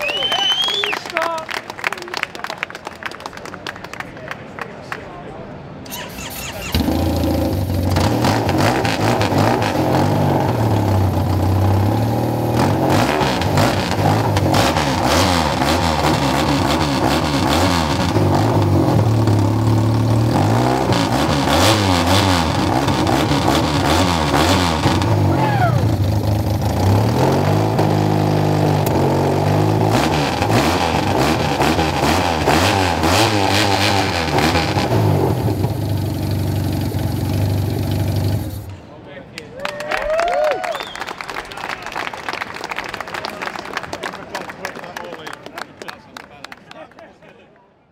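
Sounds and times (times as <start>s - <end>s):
motorcycle engine revving: 5.9s - 38.7s.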